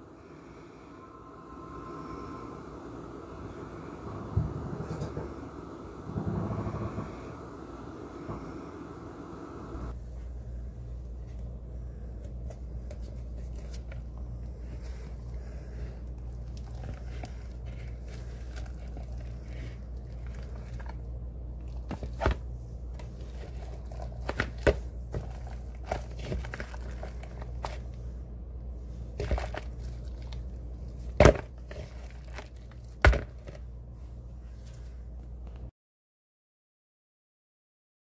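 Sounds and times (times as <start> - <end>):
low hum: 0.0 - 35.7
soap film crinkling: 12.6 - 28.0, 29.0 - 33.7.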